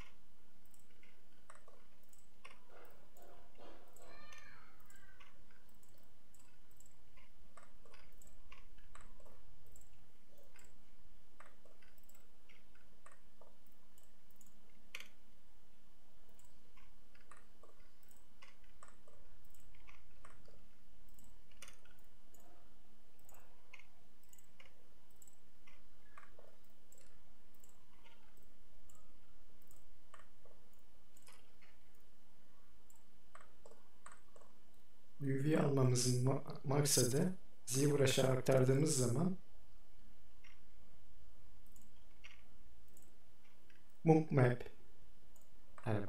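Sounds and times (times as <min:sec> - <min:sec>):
computer mouse clicking: 0:00.0 - 0:15.2, 0:16.2 - 0:32.1, 0:32.8 - 0:34.9, 0:40.4 - 0:40.7, 0:41.6 - 0:44.0, 0:45.3 - 0:46.0
faint electrical hum: 0:00.0 - 0:46.0.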